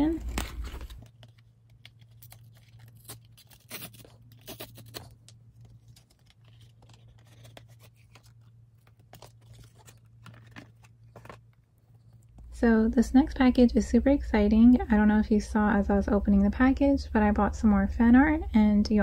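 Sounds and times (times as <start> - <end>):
package tearing and crinkling: 0.2 - 11.5
steady low hum: 8.4 - 19.0.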